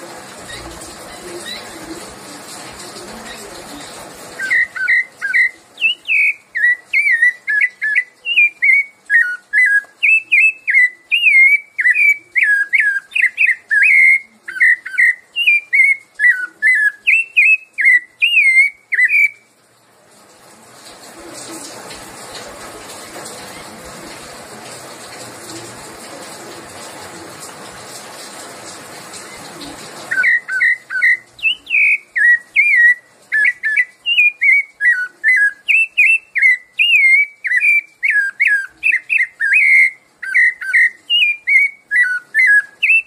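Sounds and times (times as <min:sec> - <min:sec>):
steady hiss: 0:00.0 - 0:43.0
thrush singing whistled notes: 0:04.3 - 0:19.5, 0:30.1 - 0:43.0.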